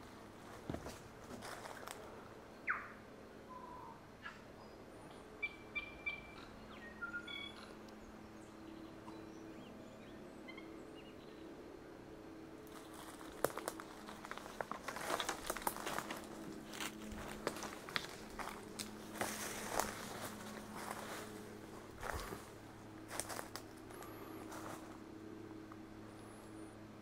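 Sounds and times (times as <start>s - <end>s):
footsteps crunching through undergrowth: 0.3s - 2.1s, 12.7s - 25.0s
wild birds calling: 1.5s - 11.7s, 12.6s - 26.6s.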